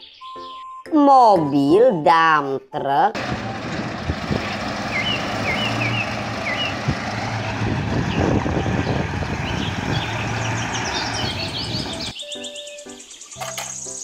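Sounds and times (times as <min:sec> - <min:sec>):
truck diesel engine droning: 0:03.2 - 0:12.2.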